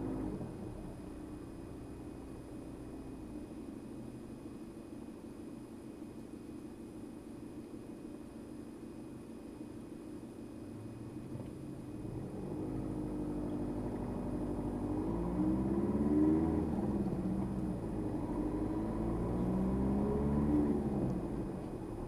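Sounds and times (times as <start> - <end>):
car engine accelerating: 0.0 - 1.9, 11.3 - 22.0.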